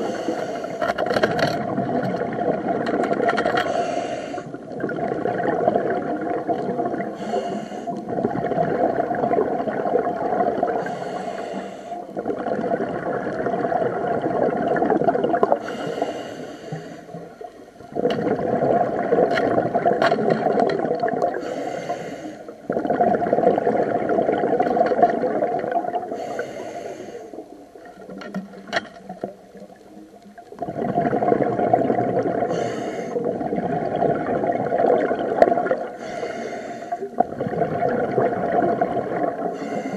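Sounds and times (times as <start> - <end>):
scuba regulator breathing: 0.0 - 1.2, 3.4 - 4.6, 7.0 - 8.1, 10.7 - 12.2, 15.5 - 17.4, 21.3 - 22.7, 26.0 - 27.5, 32.4 - 33.3, 35.9 - 37.2, 39.4 - 39.9.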